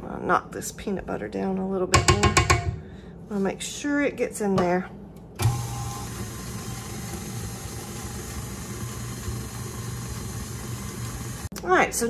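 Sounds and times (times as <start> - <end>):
stand mixer churning dough: 5.4 - 11.5.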